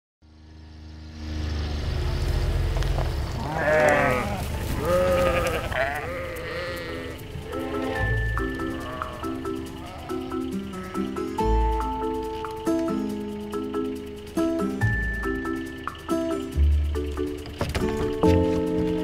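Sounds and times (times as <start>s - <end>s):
background music with bass: 1.8s - 19.0s
sheep bleating: 3.4s - 11.6s.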